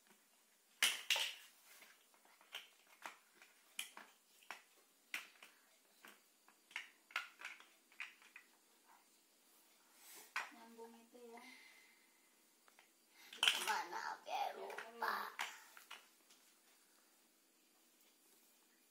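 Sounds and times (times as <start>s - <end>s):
plastic bricks clicking: 0.7s - 8.6s, 12.7s - 13.9s, 14.7s - 16.1s.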